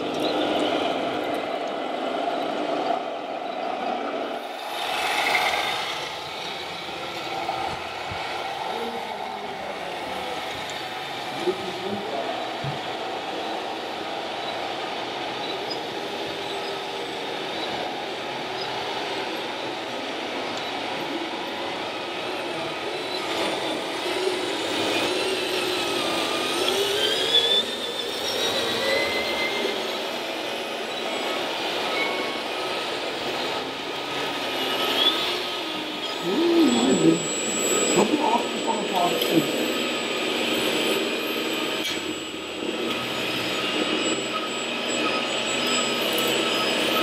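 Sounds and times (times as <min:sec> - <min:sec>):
toy truck motor whirring: 0:04.4 - 0:08.5, 0:22.2 - 0:47.0
hall noise: 0:36.1 - 0:40.4.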